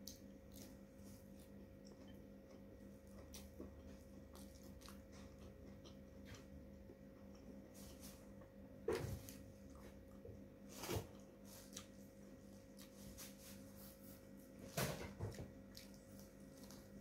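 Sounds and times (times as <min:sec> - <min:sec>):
eating and biting sounds: 0:00.0 - 0:07.6, 0:10.8 - 0:17.0
steady low hum: 0:00.0 - 0:17.0.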